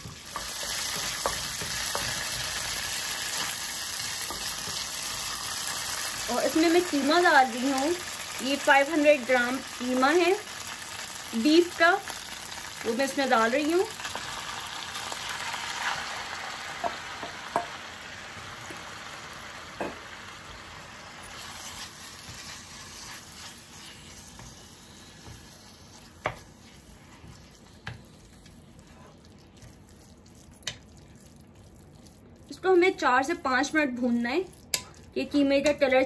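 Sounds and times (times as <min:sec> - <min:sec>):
spatula tapping pan: 0:00.0 - 0:03.5, 0:04.1 - 0:04.9, 0:16.8 - 0:17.8
meat sizzling in a frying pan: 0:00.0 - 0:27.7.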